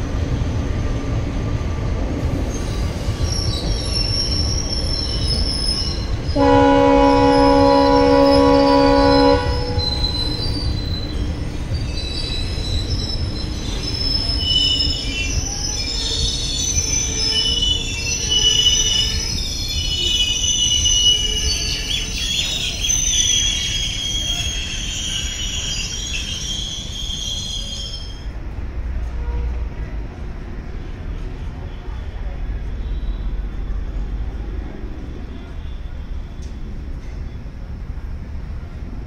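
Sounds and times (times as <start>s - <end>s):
train coaches rumbling: 0.0s - 39.0s
wheel squeal: 2.4s - 6.4s, 7.1s - 28.2s
train horn: 6.4s - 10.1s, 29.1s - 29.7s.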